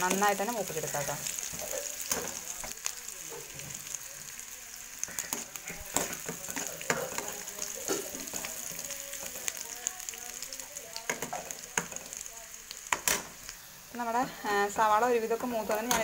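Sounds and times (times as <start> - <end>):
spoon scraping pan: 0.0 - 2.7, 5.0 - 9.4, 15.4 - 16.0
onion sizzling in oil: 0.0 - 16.0.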